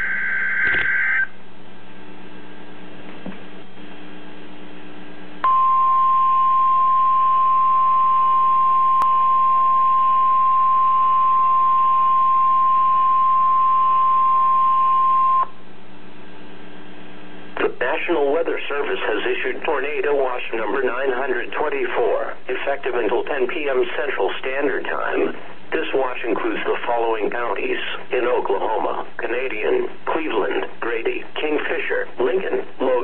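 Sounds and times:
piercing alarm tone: 0.0 - 1.4, 5.4 - 15.5
faint hum: 0.0 - 33.0.

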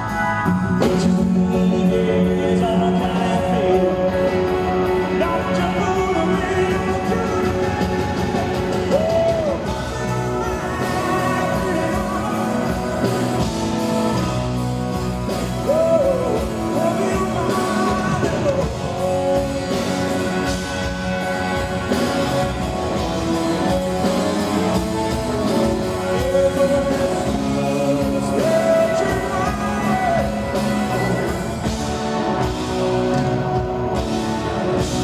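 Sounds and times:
lead electric guitar: 0.0 - 35.0
live rock band playing: 0.0 - 35.0
man singing: 0.8 - 14.6, 15.4 - 20.6, 22.9 - 31.8.

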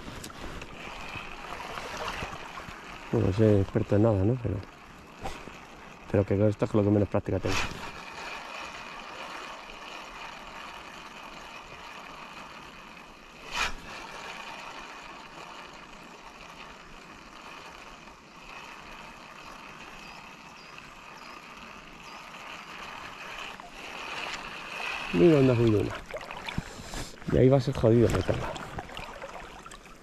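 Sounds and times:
river water rushing: 22.9 - 30.0.

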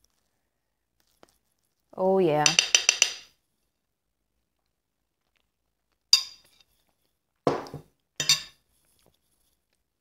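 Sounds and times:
metal fork clinking on plate: 6.2 - 6.5, 8.2 - 8.6.

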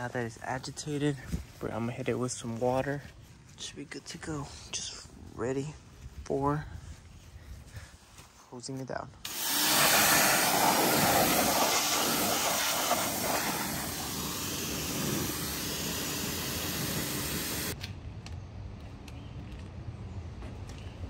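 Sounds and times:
hose spray hissing on wheel: 9.3 - 17.8.

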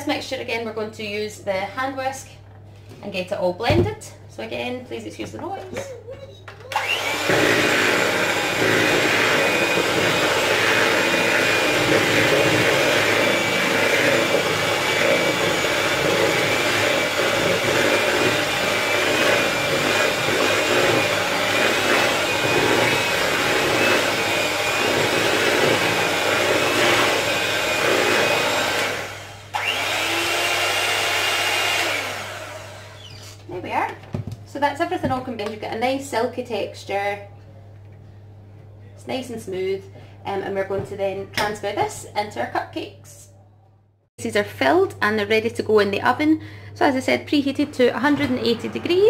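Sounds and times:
electric hand mixer running: 6.7 - 33.2, 48.0 - 49.0.

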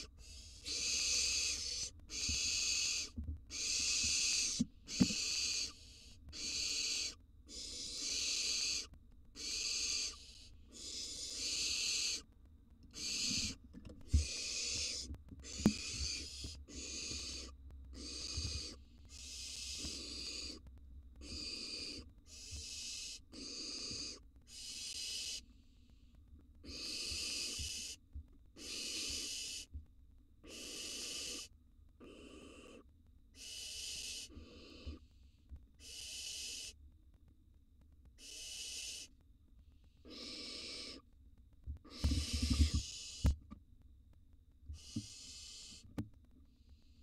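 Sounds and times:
owl nestlings hissing calls: 0.0 - 12.3, 12.9 - 25.9, 26.5 - 29.7, 30.4 - 36.8, 38.1 - 39.2, 39.8 - 41.1, 41.8 - 43.4, 44.8 - 45.9.

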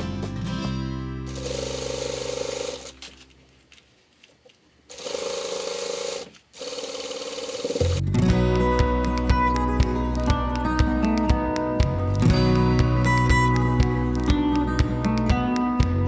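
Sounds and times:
sewing machine stitching: 1.3 - 3.0, 4.9 - 8.0
soft background music: 7.8 - 16.0.

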